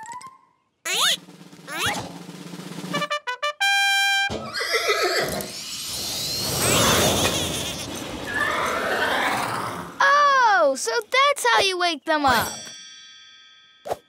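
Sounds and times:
horse whinny: 4.4s - 5.6s, 6.6s - 9.8s.

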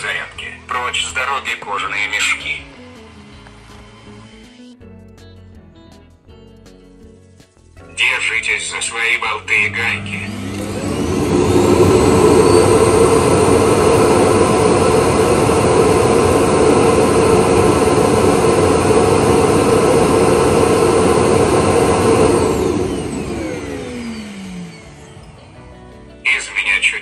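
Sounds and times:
vacuum suction motor whine: 2.5s - 4.7s, 9.0s - 26.1s.

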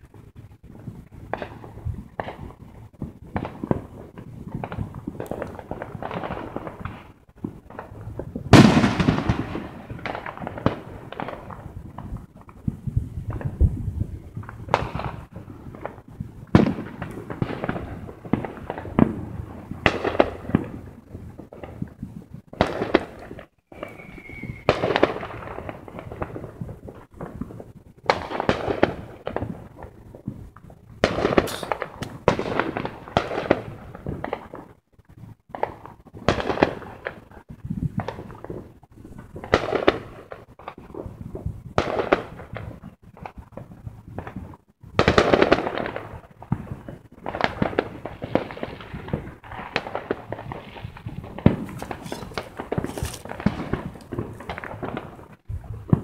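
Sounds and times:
fireworks bangs: 1.3s - 12.6s, 31.0s - 34.4s, 47.2s - 55.2s.

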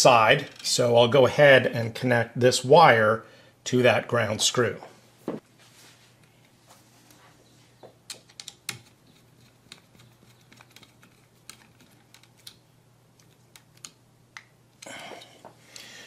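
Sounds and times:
screwdriver and wire clicking on screw: 8.1s - 12.6s.

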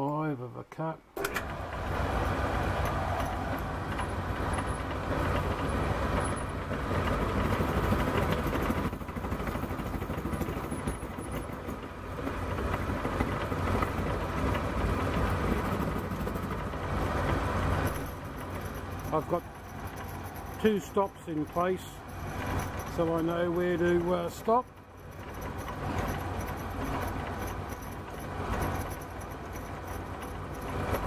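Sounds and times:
milling machine motor hum: 1.2s - 31.0s.

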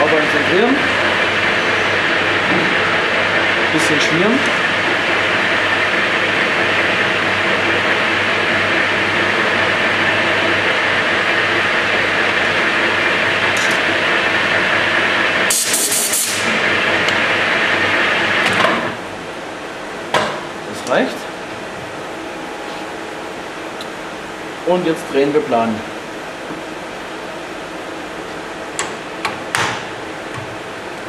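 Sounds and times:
metal lathe running: 0.0s - 18.5s
short loud hiss: 15.5s - 16.5s.

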